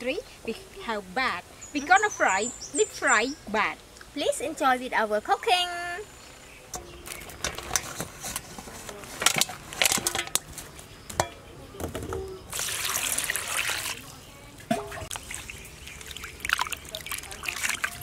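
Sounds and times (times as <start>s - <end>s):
water poured into metal basin: 12.5s - 14.1s, 14.9s - 18.0s.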